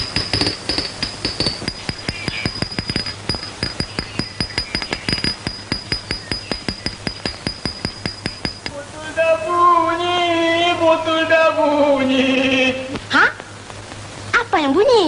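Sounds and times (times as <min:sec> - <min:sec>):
glass bottles clinking: 0:00.0 - 0:08.8
steady high ringing tone: 0:00.0 - 0:08.8.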